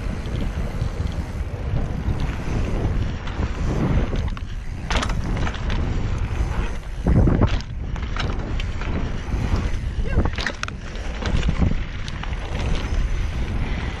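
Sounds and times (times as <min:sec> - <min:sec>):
tyres rumbling on dirt: 0:00.0 - 0:14.0
wind buffeting microphone: 0:00.0 - 0:14.0.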